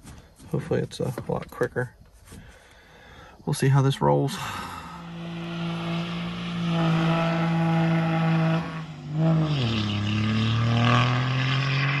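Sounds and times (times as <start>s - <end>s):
diesel truck driving past: 4.4s - 12.0s.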